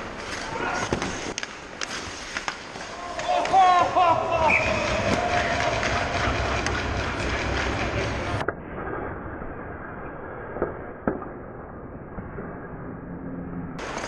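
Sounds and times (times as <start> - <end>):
skates on ice: 0.0 - 14.0
stick hitting puck: 0.3 - 3.6, 4.7 - 8.6.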